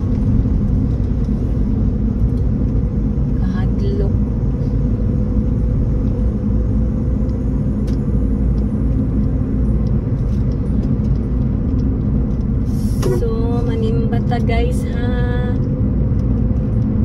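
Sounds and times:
car engine and tyre noise: 0:00.0 - 0:17.0.

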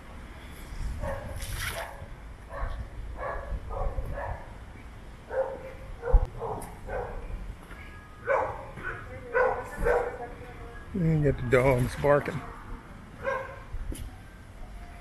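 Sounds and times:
dogs barking: 0:01.0 - 0:04.6, 0:05.3 - 0:07.3, 0:08.2 - 0:10.2, 0:13.2 - 0:13.7.

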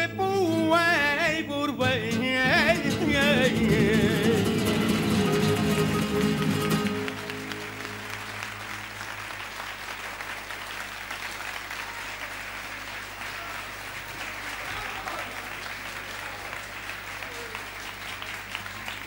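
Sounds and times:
acoustic guitars chord: 0:00.0 - 0:09.5
audience clapping: 0:02.5 - 0:19.0.

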